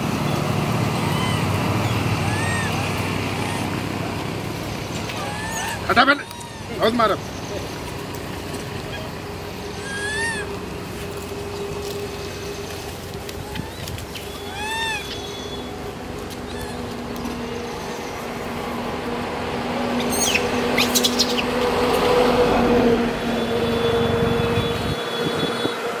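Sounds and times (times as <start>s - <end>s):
vehicle engine running: 0.0s - 25.1s
bird chirping: 13.5s - 15.8s.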